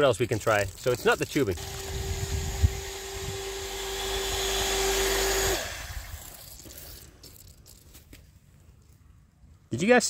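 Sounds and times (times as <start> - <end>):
electric pump humming and hissing: 0.4 - 7.6.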